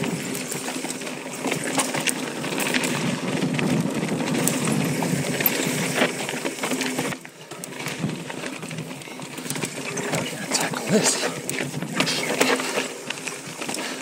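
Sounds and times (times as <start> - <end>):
bike chain and frame rattling: 0.0 - 14.0
bike tyres crunching over dirt: 0.0 - 14.0.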